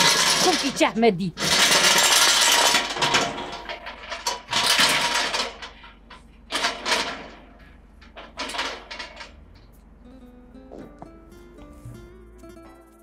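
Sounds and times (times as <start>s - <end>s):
metal gate latch rattling: 1.4s - 9.7s.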